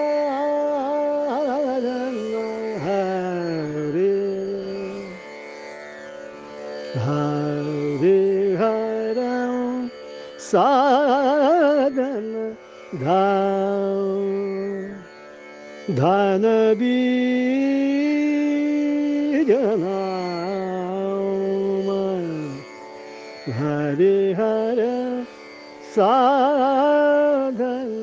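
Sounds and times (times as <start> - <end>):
man singing without words: 0.0 - 5.2, 7.0 - 15.0, 15.9 - 22.6, 23.5 - 25.3, 25.9 - 28.0.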